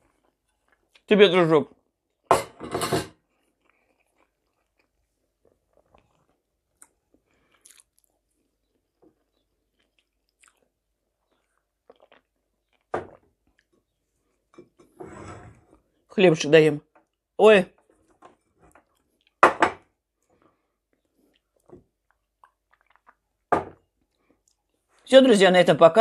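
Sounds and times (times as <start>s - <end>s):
chewing and mouth noises: 0.0s - 1.1s, 3.3s - 14.5s, 20.2s - 23.4s.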